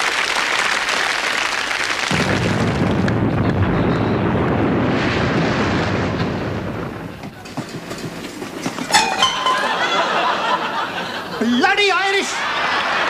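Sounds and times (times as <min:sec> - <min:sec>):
audience applauding: 0:00.0 - 0:02.8
studio audience laughing: 0:09.4 - 0:13.0.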